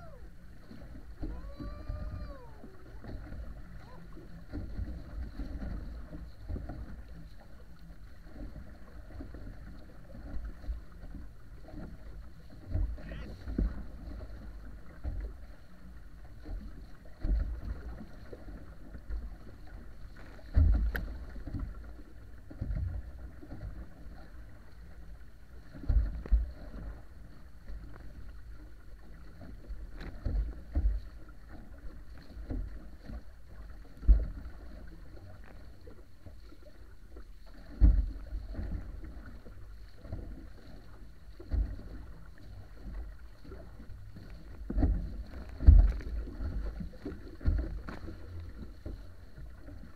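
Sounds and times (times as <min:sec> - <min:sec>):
hull slapping water: 0:00.0 - 0:49.9
water rushing past hull: 0:00.0 - 0:49.9
wind on microphone: 0:01.2 - 0:04.0.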